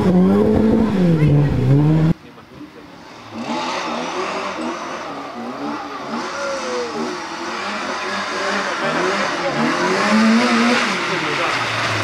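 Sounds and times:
rally car engine revving: 0.0s - 12.0s
tyre and road noise: 0.0s - 12.0s.

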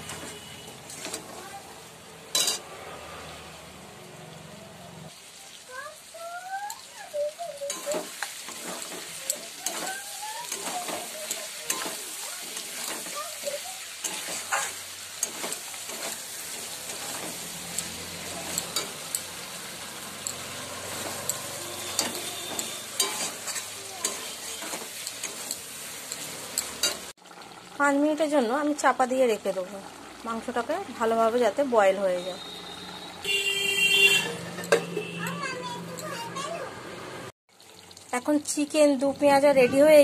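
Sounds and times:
metal spatula scraping a pan: 0.0s - 1.6s, 2.3s - 2.7s, 7.6s - 27.1s
food sizzling in a pan: 0.0s - 40.0s.

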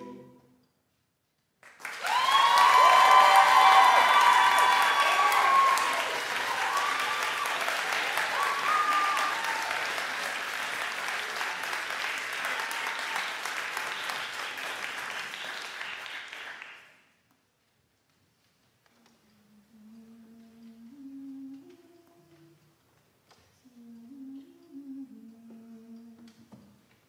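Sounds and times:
audience applause: 1.6s - 17.0s
audience cheering: 1.8s - 16.0s.

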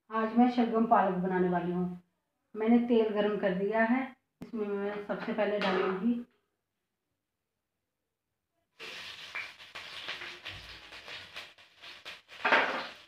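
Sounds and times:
food sizzling in hot oil: 8.8s - 13.0s.

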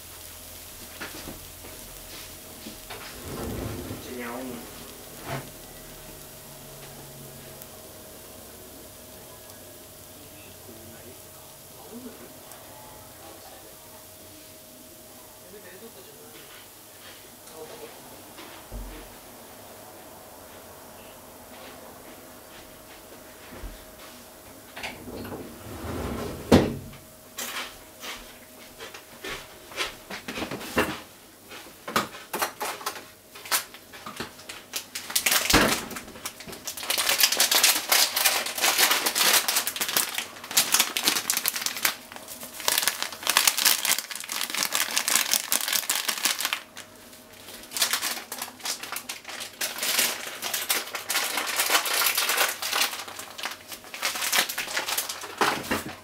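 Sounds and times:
plastic packet crinkling: 32.4s - 56.0s.

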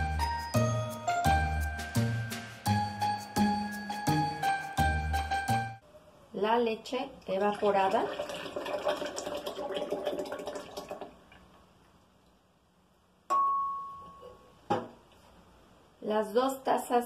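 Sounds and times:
milk pouring into blender jar: 7.6s - 11.1s
glass clink with ringing tone: 13.3s - 14.5s.

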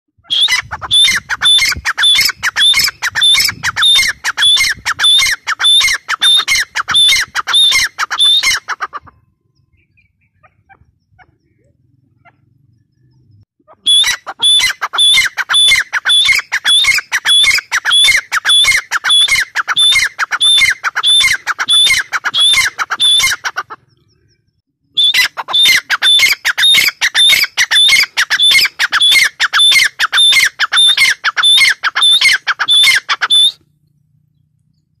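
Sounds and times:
bird calling harsh notes: 0.2s - 33.6s.

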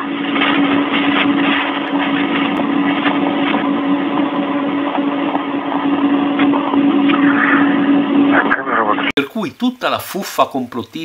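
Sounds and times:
low hum: 0.0s - 11.0s
radio hiss: 5.5s - 11.0s.

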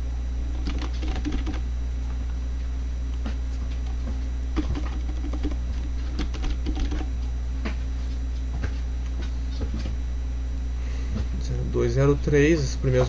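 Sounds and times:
steady low hum: 0.0s - 13.0s
typing on computer keyboard: 0.5s - 1.6s, 4.6s - 7.1s.

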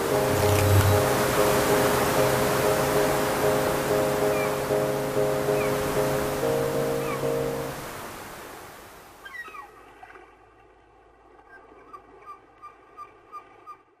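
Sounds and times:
faint short pitched notes: 0.0s - 1.4s
held music chord: 0.0s - 8.2s
ocean surf washing up beach: 0.0s - 9.2s.

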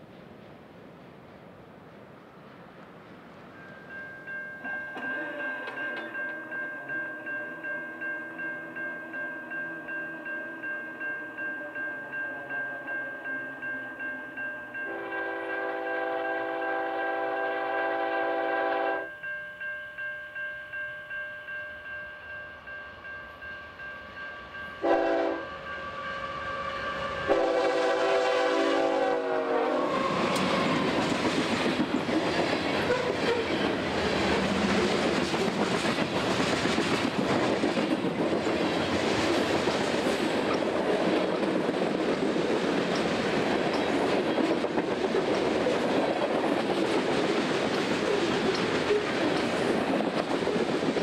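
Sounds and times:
locomotive bell ringing: 3.5s - 27.6s
train horn blasts: 14.9s - 19.1s, 24.8s - 30.8s, 32.9s - 33.6s
train wheels rolling and clattering: 29.8s - 51.0s.

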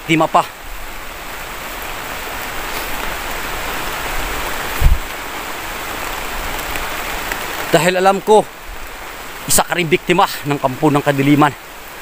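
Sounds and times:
heavy rain: 0.0s - 12.0s
dull low thump: 4.8s - 5.1s.

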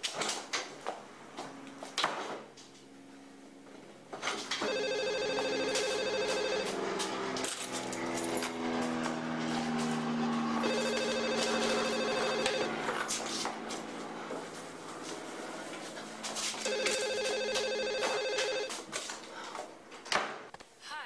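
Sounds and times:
phone ringing: 4.6s - 6.8s, 10.6s - 12.8s, 16.6s - 18.8s.

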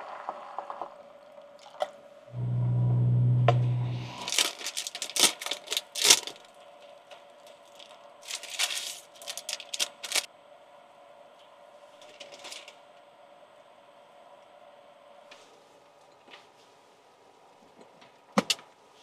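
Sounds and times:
low steady hum: 2.2s - 16.2s
plastic packets crinkling: 4.2s - 6.6s, 7.4s - 10.3s.

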